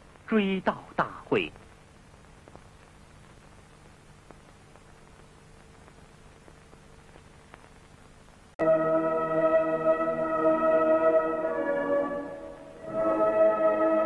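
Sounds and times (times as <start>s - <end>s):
faint steady hum: 0.0s - 14.0s
film soundtrack hiss: 0.0s - 14.0s
faint clicks: 2.4s - 7.9s
slow music with sustained chords: 8.6s - 14.0s.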